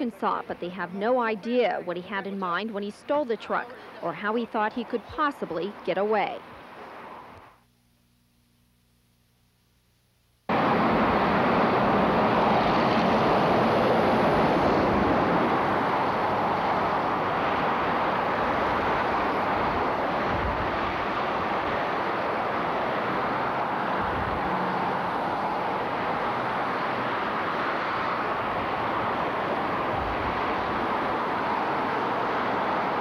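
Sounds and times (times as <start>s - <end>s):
freeway traffic roar: 0.0s - 7.4s, 10.5s - 33.0s.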